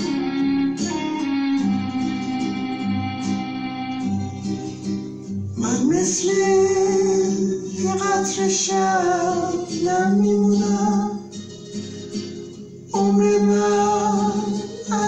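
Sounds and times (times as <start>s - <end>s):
steady musical accompaniment: 0.0s - 6.5s
woman singing slow melody: 13.0s - 15.0s.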